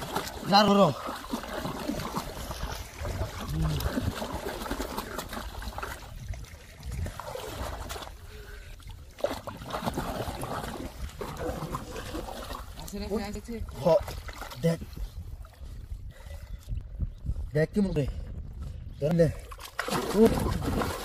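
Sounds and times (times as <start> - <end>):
river water splashing: 0.0 - 14.8, 19.4 - 21.0.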